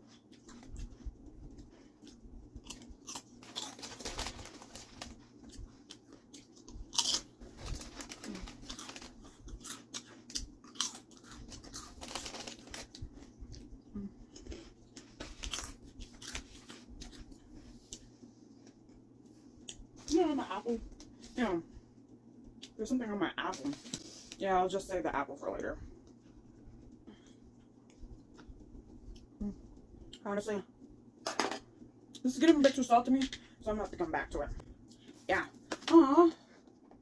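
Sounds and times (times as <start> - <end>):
crunchy chewing: 0.1 - 19.9.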